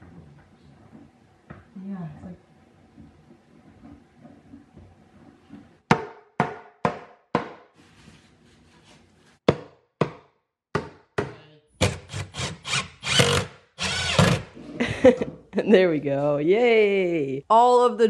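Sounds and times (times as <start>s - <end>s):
sharp knocks on wood: 5.9s - 7.7s, 9.5s - 11.4s
drill driving screws into wood: 11.8s - 14.6s.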